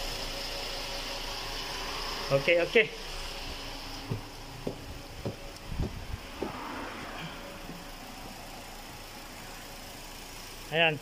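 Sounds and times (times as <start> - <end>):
footsteps on tiles: 4.0 - 6.6.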